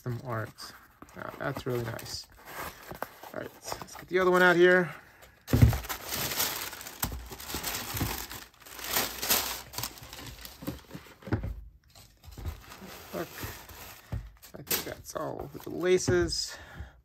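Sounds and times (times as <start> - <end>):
tissue paper rustling: 5.6 - 11.2, 12.3 - 14.9.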